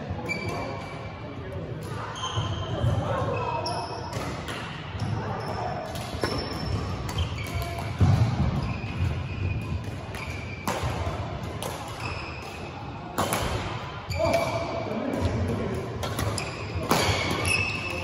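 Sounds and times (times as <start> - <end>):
sneakers squeaking on floor: 0.2 - 1.1, 1.9 - 11.0, 11.7 - 12.8, 13.6 - 15.4, 16.0 - 18.0
racket hitting shuttlecock: 9.8 - 14.5, 16.0 - 18.0.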